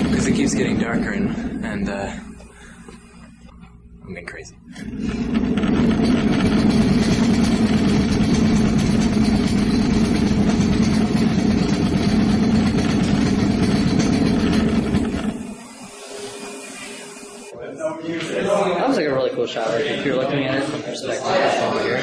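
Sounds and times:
wheels rolling over tiled floor: 4.8s - 17.5s.

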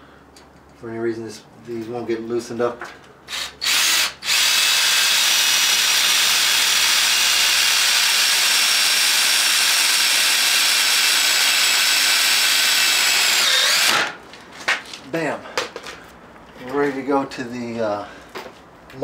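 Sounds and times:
cordless drill driving screw: 3.3s - 14.1s.

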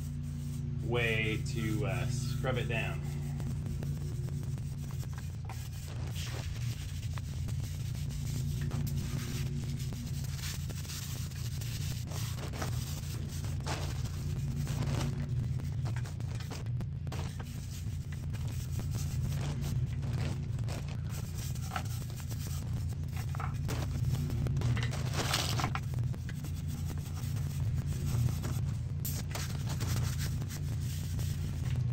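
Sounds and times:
bristle brush scrubbing metal: 0.0s - 16.6s, 17.2s - 24.3s
steady low hum: 0.0s - 31.9s.

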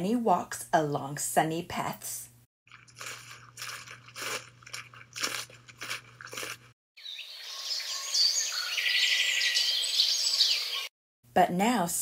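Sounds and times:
birds chirping and twittering: 7.0s - 10.9s.

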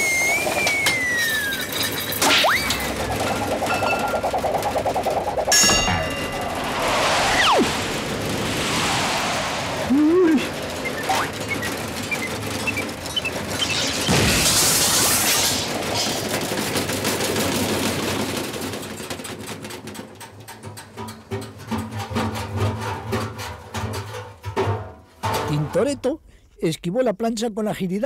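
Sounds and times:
rising-and-falling whistle: 0.0s - 12.3s
crashes and bangs: 2.8s - 12.0s
loud hissing rush: 5.3s - 11.4s
heavy hit: 5.5s - 10.9s.

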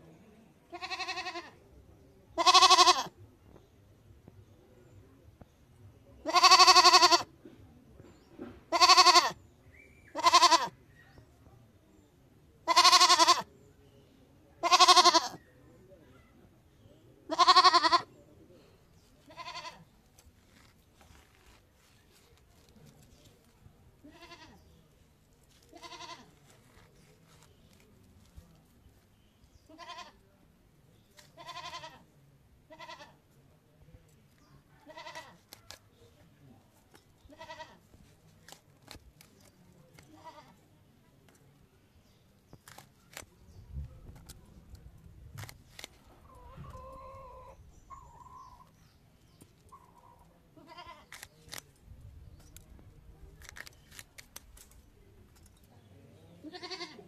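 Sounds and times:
goat bleating: 0.7s - 1.6s, 2.4s - 3.1s, 6.3s - 7.3s, 8.7s - 9.4s, 10.1s - 10.7s, 12.6s - 13.5s, 14.6s - 15.4s, 17.3s - 18.1s, 19.3s - 19.8s, 24.0s - 24.6s, 25.7s - 26.8s, 29.7s - 30.2s, 31.4s - 32.0s, 32.7s - 33.2s, 34.9s - 35.4s, 37.3s - 37.8s, 50.6s - 51.1s, 56.4s - 57.0s.

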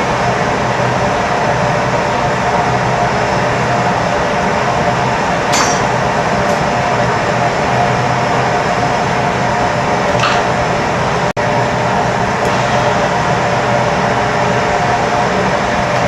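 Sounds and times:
gas burners rushing: 0.0s - 16.0s
sharp clink of glass or metal: 5.5s - 6.0s.

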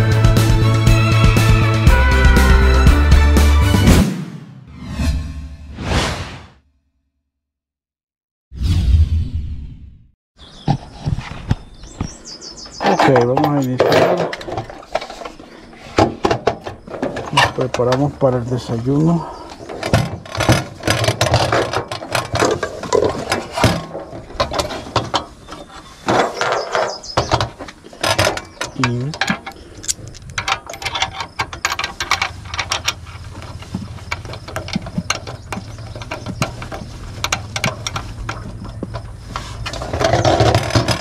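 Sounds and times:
metal clicks and clatter: 12.8s - 15.4s, 16.0s - 41.0s.

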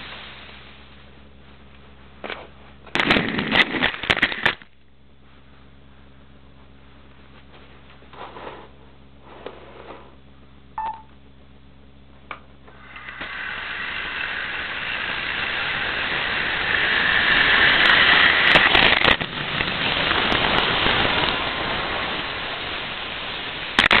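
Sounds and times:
low hum: 0.0s - 24.0s
model train whirring rumble: 12.6s - 23.9s.

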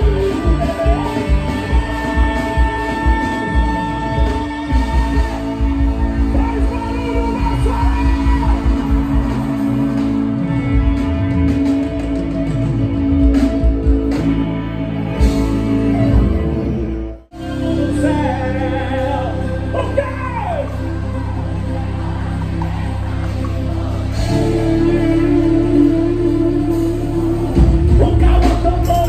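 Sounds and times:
person singing: 0.0s - 9.7s, 24.1s - 29.0s
live rock band playing: 0.0s - 29.0s.

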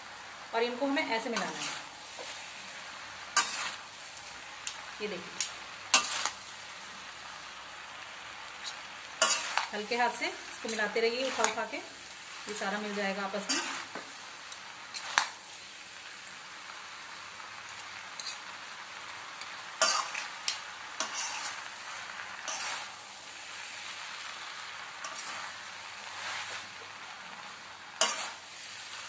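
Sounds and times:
food sizzling in a wok: 0.0s - 29.0s
spoons scraping a wok: 1.2s - 2.6s, 3.3s - 3.9s, 5.4s - 6.4s, 8.6s - 14.0s, 14.9s - 15.3s, 17.8s - 18.6s, 19.4s - 23.0s, 23.8s - 27.0s, 28.0s - 28.8s.

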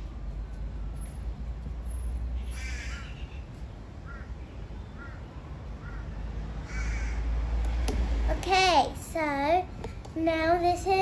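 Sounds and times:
steady low rumble: 0.0s - 11.0s
crow cawing: 2.5s - 3.2s, 4.0s - 4.3s, 5.8s - 7.3s.

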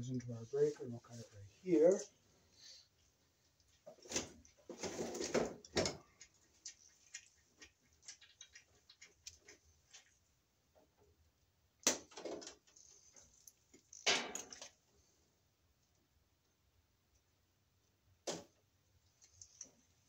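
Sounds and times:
small clicks and rustles: 3.0s - 11.1s, 12.0s - 15.2s, 19.0s - 20.0s.

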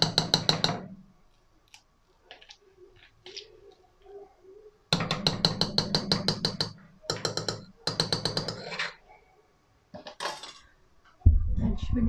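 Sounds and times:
metal spoon knocking on metal pot: 0.0s - 1.0s, 5.0s - 8.7s.

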